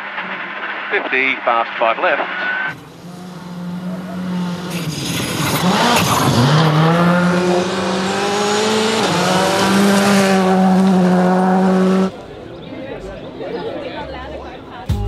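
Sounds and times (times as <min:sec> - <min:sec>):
rally car engine at high revs: 0:01.7 - 0:12.2.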